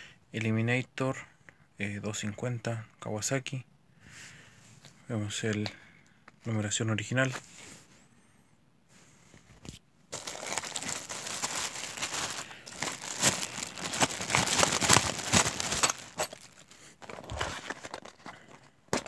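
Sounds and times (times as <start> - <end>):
plastic bag crinkling: 10.1 - 18.2.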